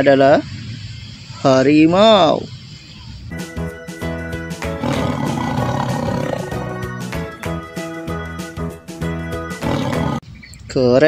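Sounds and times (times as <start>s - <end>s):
background music with beat: 3.3s - 10.2s
tiger growling and roaring: 4.6s - 6.8s, 9.6s - 10.2s.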